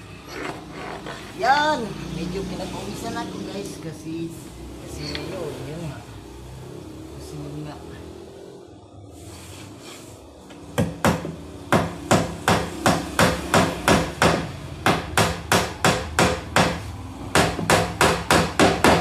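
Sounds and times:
hammer driving nail into wood: 0:10.8 - 0:19.0.

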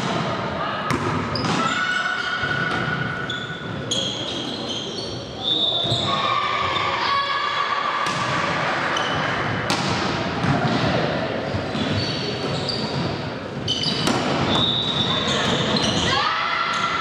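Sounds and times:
players' voices: 0:00.0 - 0:17.0
shoe squeaks: 0:03.2 - 0:06.2, 0:11.5 - 0:16.2.

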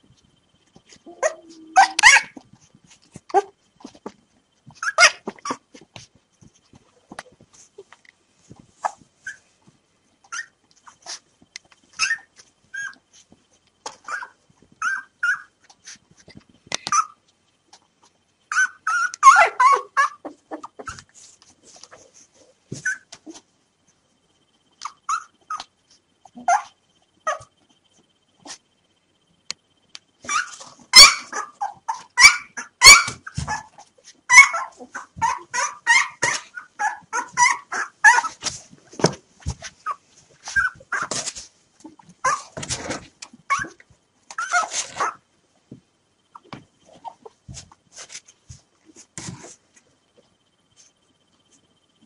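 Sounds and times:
puppies squealing and whimpering: 0:01.1 - 0:02.4, 0:12.0 - 0:13.0, 0:14.0 - 0:15.5, 0:18.5 - 0:21.0, 0:30.2 - 0:38.4, 0:43.5 - 0:45.2.

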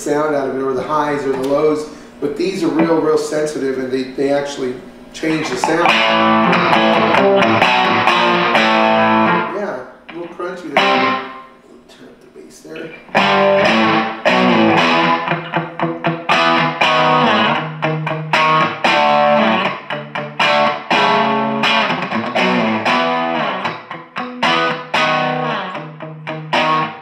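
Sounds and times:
electric guitar chords and riffs: 0:05.2 - 0:11.5, 0:12.8 - 0:27.0.

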